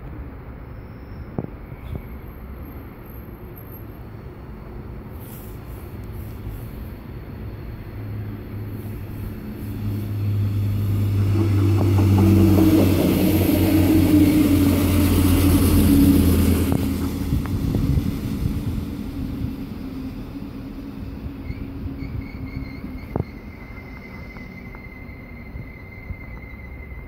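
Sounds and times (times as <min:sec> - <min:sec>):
diesel train engine drone: 0:00.0 - 0:27.0
wheels clacking on track: 0:09.4 - 0:20.4, 0:21.3 - 0:27.0.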